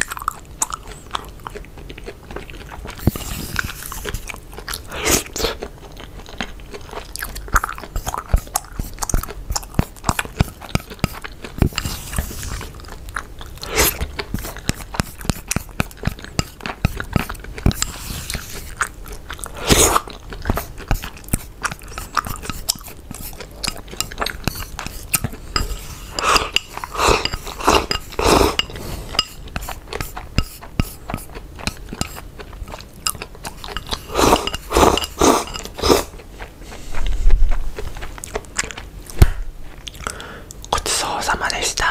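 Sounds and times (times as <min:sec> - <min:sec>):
close chewing and swallowing: 0:00.0 - 0:41.9.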